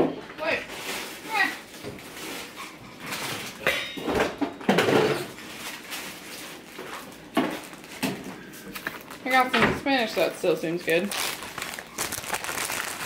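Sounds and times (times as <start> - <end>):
kitchen items knocking and thumping: 0.0 - 5.7, 6.8 - 8.4, 9.4 - 10.3.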